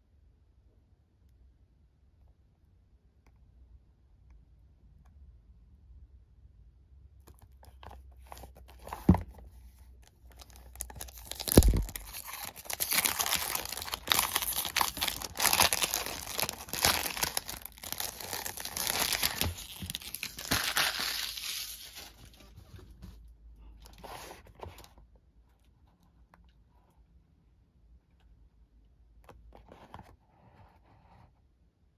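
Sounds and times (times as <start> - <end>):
cellophane crinkling: 10.1 - 22.5.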